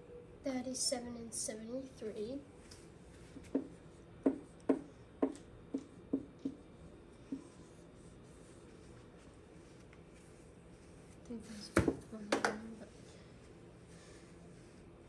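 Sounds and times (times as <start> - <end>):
marker writing on whiteboard: 3.2 - 9.4.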